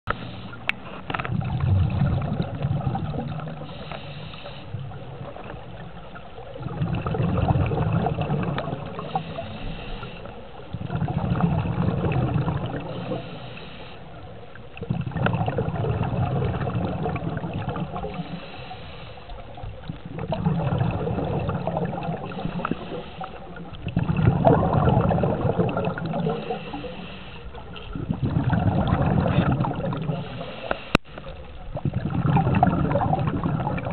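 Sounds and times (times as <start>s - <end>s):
underwater breath bubbles: 0.1s - 33.9s
regulator inhalation hiss: 3.6s - 4.8s, 9.0s - 10.4s, 12.8s - 14.2s, 18.0s - 19.5s, 22.3s - 23.6s, 26.2s - 27.6s, 30.2s - 31.1s.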